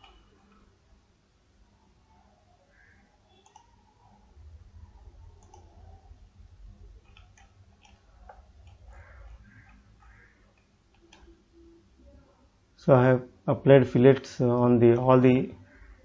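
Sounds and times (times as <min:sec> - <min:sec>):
low steady hum: 0:00.0 - 0:16.0
faint computer mouse clicks: 0:03.4 - 0:03.7, 0:05.4 - 0:05.7, 0:07.0 - 0:11.3.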